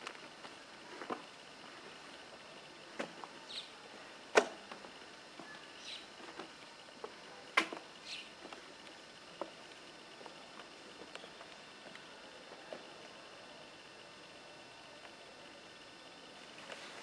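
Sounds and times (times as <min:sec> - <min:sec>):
faint high chirps: 0:01.9 - 0:04.1, 0:05.3 - 0:08.5, 0:10.0 - 0:17.0.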